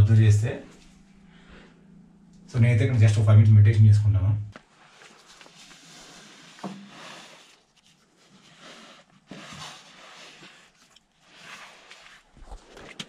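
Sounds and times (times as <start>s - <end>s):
clothing rubbing against rock: 4.8s - 13.0s.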